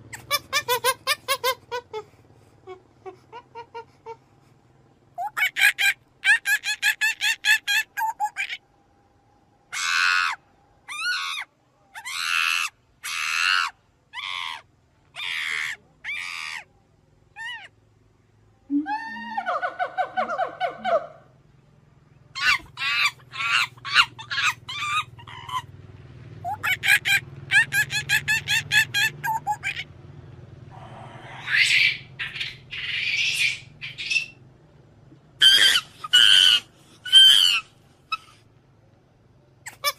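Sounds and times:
monkey screaming: 0.1s - 2.1s, 5.2s - 8.6s, 9.7s - 16.7s, 17.3s - 17.7s, 22.4s - 25.8s, 26.4s - 29.9s, 30.8s - 34.4s, 35.4s - 38.4s, 39.7s - 39.9s
short squeaky monkey calls: 0.1s - 2.1s, 9.8s - 14.6s, 17.4s - 17.7s, 22.4s - 25.7s, 26.4s - 29.9s, 31.4s - 34.4s, 35.4s - 38.4s, 39.6s - 39.9s.

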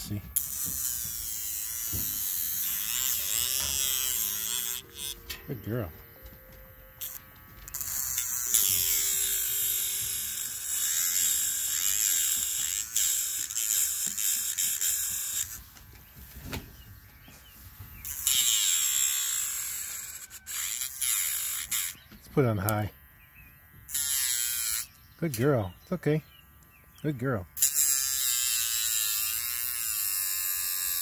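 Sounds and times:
gritty hiss of grinding nail: 0.0s - 5.3s, 7.0s - 15.7s, 18.0s - 22.0s
nail grinder motor whining: 0.0s - 5.9s, 6.9s - 16.0s, 18.0s - 22.9s, 23.6s - 25.5s, 27.6s - 31.0s.

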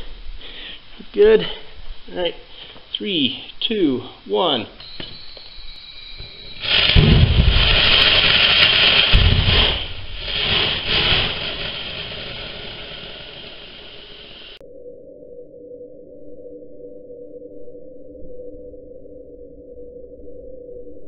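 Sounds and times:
rocket engine firing: 6.4s - 14.6s.

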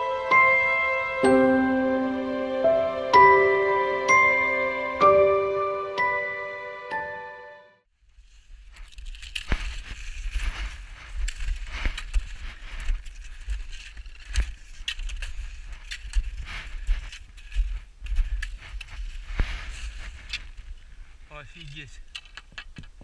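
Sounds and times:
footsteps crunching through snow: 8.1s - 21.4s.

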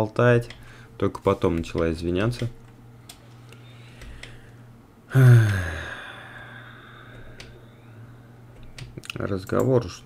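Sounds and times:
man sighing: 5.1s - 7.6s.

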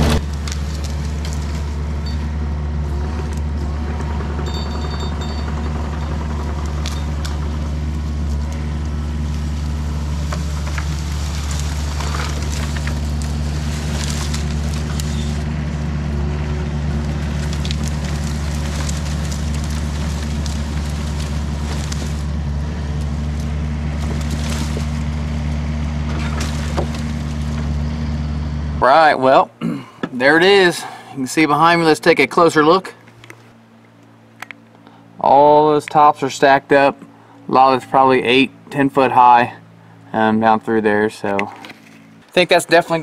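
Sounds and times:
branches cracking: 0.0s - 4.4s, 5.1s - 28.3s
excavator diesel engine running: 0.0s - 43.0s.

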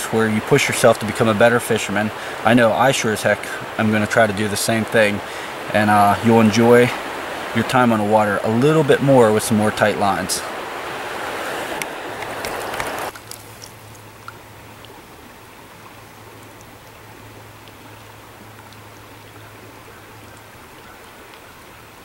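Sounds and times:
stream water rushing: 0.0s - 22.0s.

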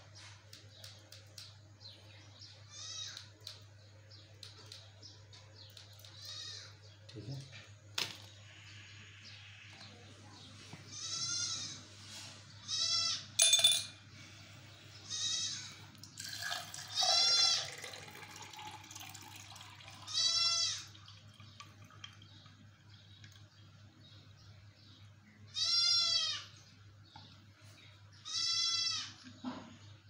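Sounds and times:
goat bleating: 10.9s - 11.8s, 15.1s - 15.7s, 25.5s - 26.5s, 28.2s - 29.2s
stone clinking into glass: 13.4s - 14.0s
water poured into glass: 16.1s - 20.2s, 20.8s - 22.3s.

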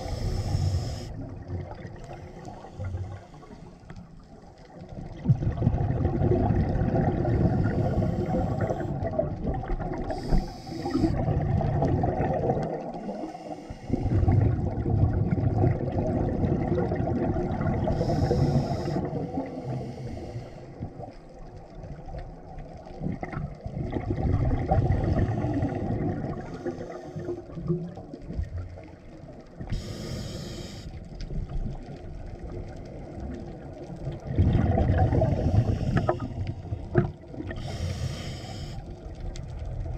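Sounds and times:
regulator inhalation hiss: 0.0s - 1.2s, 2.1s - 3.8s, 7.4s - 9.0s, 10.1s - 11.2s, 13.0s - 14.2s, 17.9s - 20.8s, 26.4s - 27.5s, 29.7s - 31.1s, 35.4s - 36.4s, 37.6s - 39.0s
underwater bubbles gurgling: 0.0s - 39.9s.

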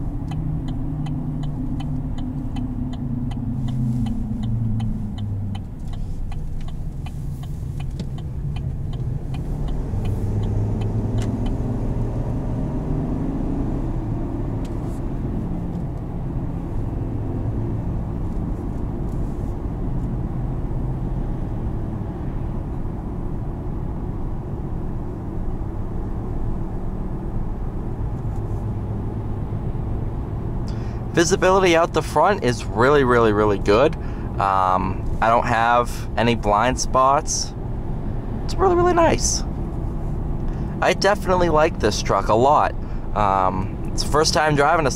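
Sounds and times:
turn signal clicking: 0.0s - 12.4s
engine hum: 0.0s - 44.9s
road noise: 0.0s - 44.9s.

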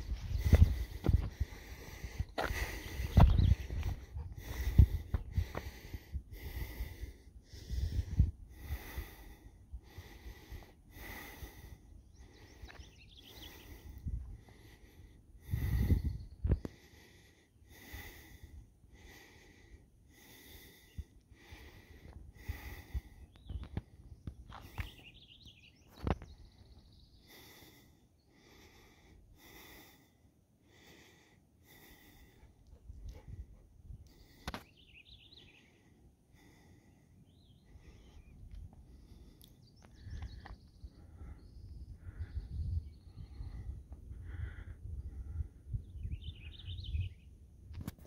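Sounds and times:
person breathing heavily: 0.0s - 25.2s, 26.4s - 45.9s
low wind rumble: 0.0s - 25.4s, 30.7s - 34.4s, 36.0s - 47.8s
faint bird calls: 10.0s - 14.9s, 20.3s - 29.1s, 31.8s - 47.4s.

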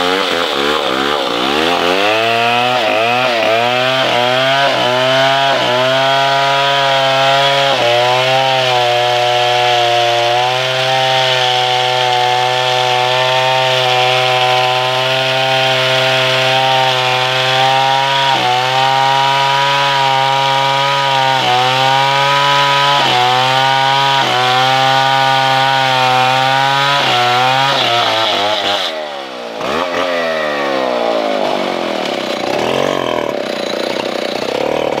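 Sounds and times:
chainsaw cutting into tree trunk: 0.0s - 35.0s.

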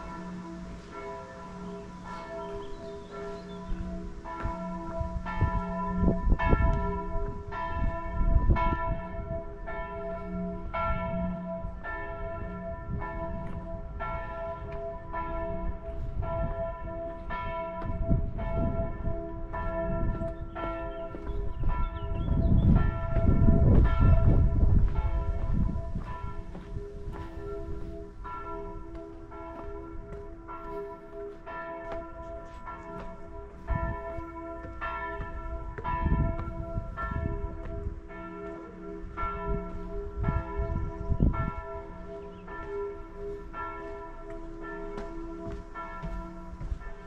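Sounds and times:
church bells pealing: 0.0s - 47.0s
low rumbling noise: 21.4s - 27.2s.

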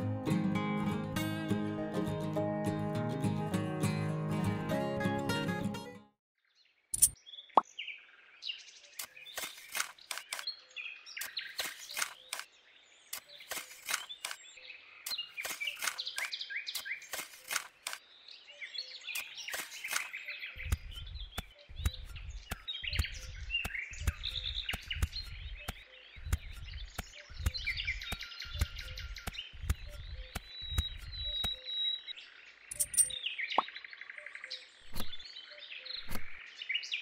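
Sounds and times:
birds chirping: 7.0s - 37.0s
metal hoe scraping sand: 9.0s - 10.4s, 11.3s - 12.4s, 13.2s - 14.4s, 15.1s - 18.0s, 19.2s - 31.6s, 34.8s - 35.2s.

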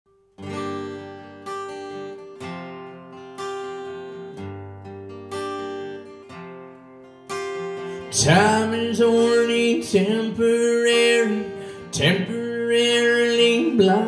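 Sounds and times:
acoustic guitar strummed slowly: 0.1s - 14.0s.

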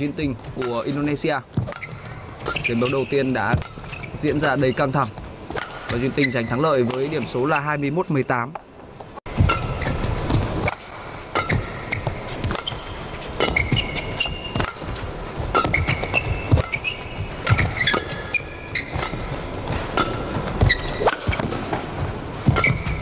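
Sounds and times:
court shoes squeaking: 0.0s - 23.0s
racket hitting shuttlecock: 1.6s - 4.6s, 5.5s - 6.0s, 6.8s - 7.2s, 9.3s - 23.0s.

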